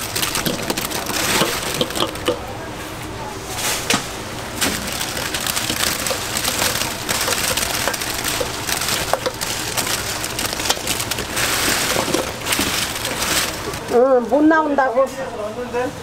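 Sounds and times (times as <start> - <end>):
fried chicken tumbling into bowl: 0.1 - 2.4, 4.6 - 13.8.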